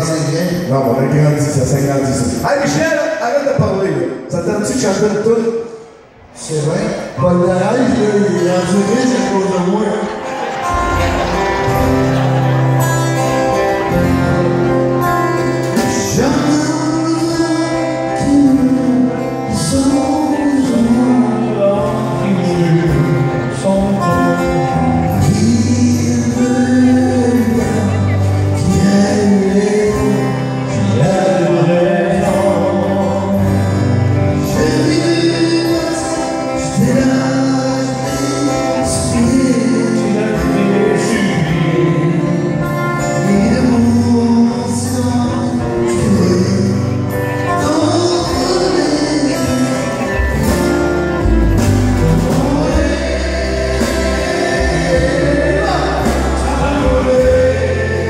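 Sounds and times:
strummed acoustic guitars: 0:06.0 - 0:58.0
man singing: 0:06.5 - 0:12.2, 0:13.5 - 0:58.0.

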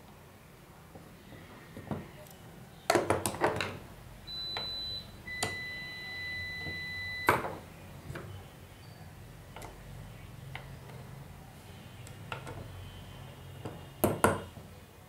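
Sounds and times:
electronic beep: 0:04.3 - 0:07.6.

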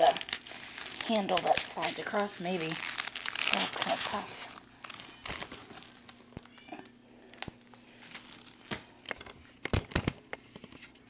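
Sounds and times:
bag handling clicks and knocks: 0:00.1 - 0:05.9.

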